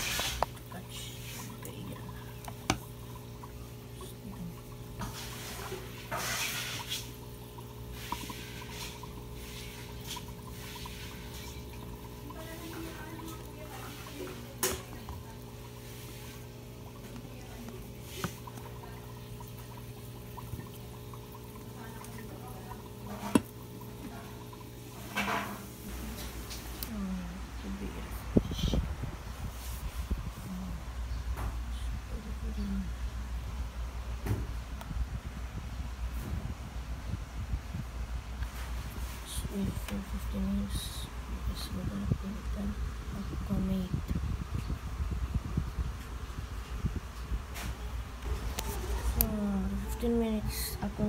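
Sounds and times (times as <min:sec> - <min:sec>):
water bubbling: 0:00.0 - 0:26.0
air pump humming: 0:00.0 - 0:32.8.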